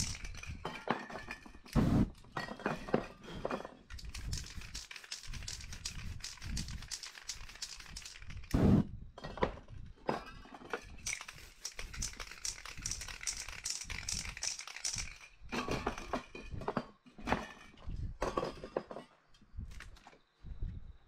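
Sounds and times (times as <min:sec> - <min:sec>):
spray paint can hissing: 0:00.0 - 0:00.4, 0:04.0 - 0:08.8, 0:11.0 - 0:15.2
cans clicking and knocking: 0:00.0 - 0:00.6, 0:11.0 - 0:15.2.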